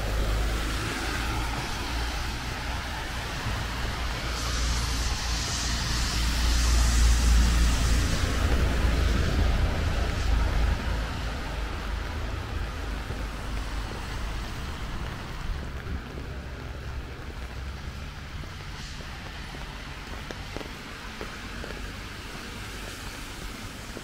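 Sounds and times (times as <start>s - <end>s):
distant traffic wash: 0.0s - 24.0s
vehicle passing on wet road: 0.0s - 24.0s.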